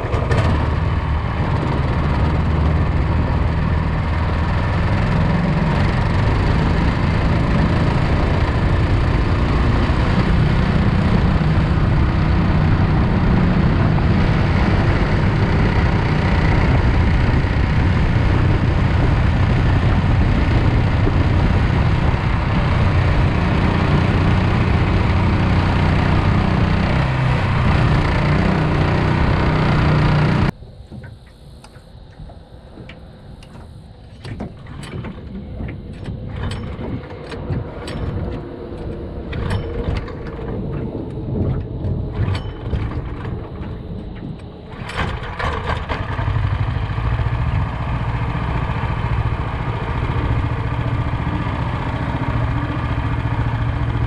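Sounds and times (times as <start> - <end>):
boat engine running: 0.0 - 54.0
scattered clicks and knocks: 30.9 - 46.1.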